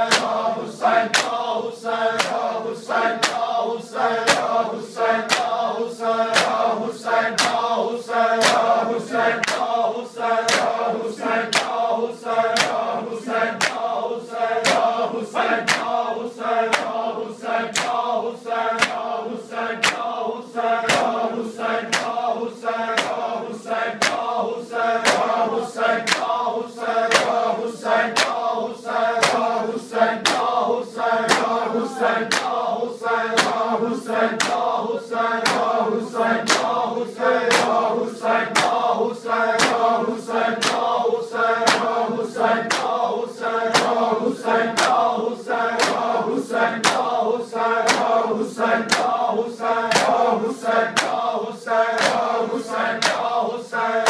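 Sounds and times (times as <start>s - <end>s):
hands slapping bare chests: 0.0s - 1.5s, 2.2s - 2.6s, 3.2s - 3.6s, 4.2s - 4.6s, 5.2s - 5.7s, 6.3s - 6.7s, 7.3s - 7.7s, 8.4s - 8.8s, 9.4s - 9.8s, 10.4s - 10.8s, 11.4s - 11.9s, 12.5s - 14.0s, 14.6s - 16.1s, 16.7s - 17.0s, 17.7s - 18.1s, 18.7s - 19.2s, 19.8s - 20.2s, 20.8s - 21.2s, 21.8s - 22.2s, 23.0s - 23.3s, 24.0s - 24.3s, 25.0s - 25.4s, 26.0s - 26.4s, 27.1s - 27.5s, 28.1s - 28.5s, 29.2s - 29.6s, 30.2s - 30.6s, 31.3s - 32.6s, 33.3s - 33.7s, 34.4s - 34.7s, 35.4s - 35.8s, 36.4s - 36.8s, 37.5s - 37.8s, 38.5s - 38.9s, 39.6s - 40.0s, 40.6s - 41.0s, 41.6s - 42.0s, 42.6s - 43.0s, 43.7s - 44.0s, 44.8s - 45.1s, 45.8s - 46.1s, 46.8s - 47.2s, 47.8s - 48.2s, 48.9s - 49.2s, 49.9s - 50.2s, 50.9s - 51.3s, 52.0s - 52.3s, 53.0s - 53.3s
crowd of men chanting: 0.0s - 54.0s.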